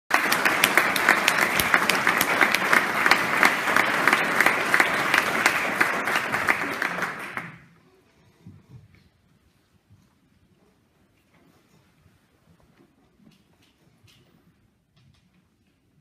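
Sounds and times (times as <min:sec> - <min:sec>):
audience applauding: 0:00.1 - 0:07.7.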